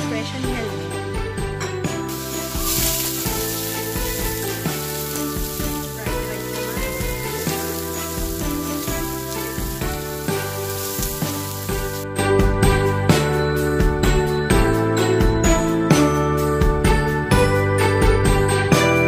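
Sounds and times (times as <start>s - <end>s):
background music with held notes: 0.0s - 19.0s
shrimp sizzling in a pot: 2.1s - 12.0s
spatula stirring: 2.1s - 12.0s.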